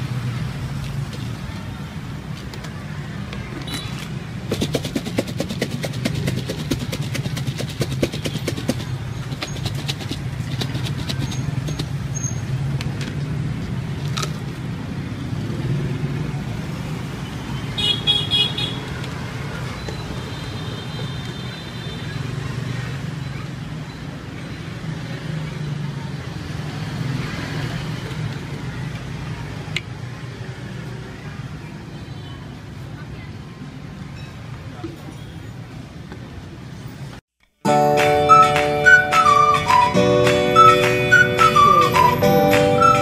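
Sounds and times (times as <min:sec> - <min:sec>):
low traffic hum: 0:00.0 - 0:43.0
food rattling in plastic container: 0:04.4 - 0:12.0.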